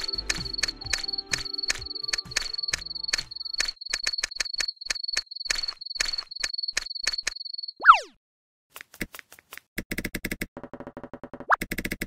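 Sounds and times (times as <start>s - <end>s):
cricket chirping: 0.0s - 7.8s.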